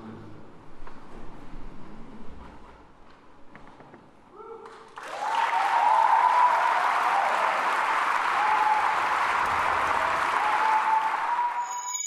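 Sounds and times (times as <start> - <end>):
audience applauding: 4.9 - 12.0
bright metallic chime: 11.6 - 12.0
high held tone: 11.6 - 12.0.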